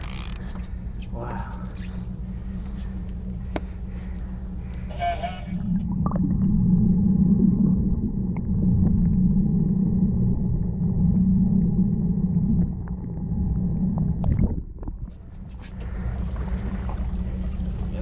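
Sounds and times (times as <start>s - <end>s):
muffled underwater rumble: 0.0s - 18.0s.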